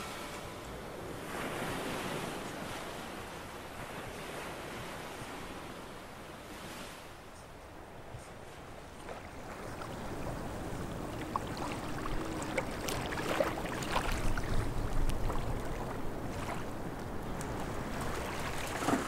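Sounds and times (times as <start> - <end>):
water lapping and splashing: 8.0 - 19.0.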